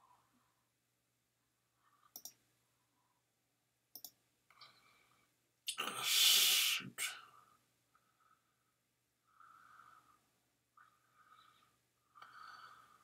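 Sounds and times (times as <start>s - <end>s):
computer mouse clicking: 2.1s - 2.4s, 3.9s - 4.2s.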